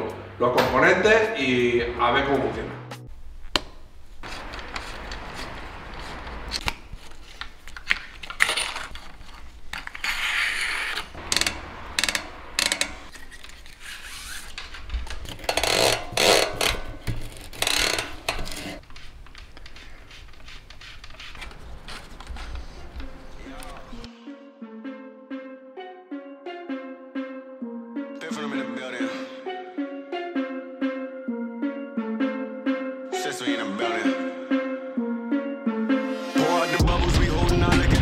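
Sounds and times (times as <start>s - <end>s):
shift cable scraping: 4.2s - 6.6s, 8.2s - 23.0s.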